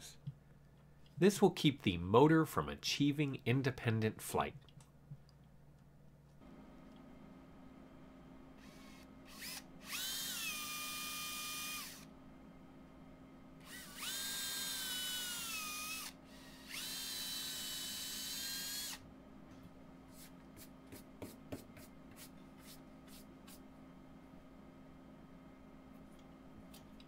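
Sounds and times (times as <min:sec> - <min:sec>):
cordless drill motor whine: 0:08.6 - 0:12.1, 0:13.6 - 0:19.0.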